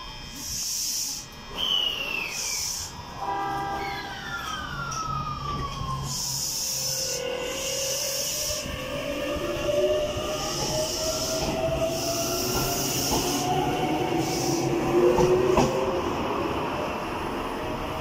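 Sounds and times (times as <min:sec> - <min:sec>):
electric train motor whine: 0:00.0 - 0:18.0
train wheels rumbling: 0:00.0 - 0:18.0
train wheel clack: 0:10.4 - 0:13.6, 0:14.2 - 0:15.9.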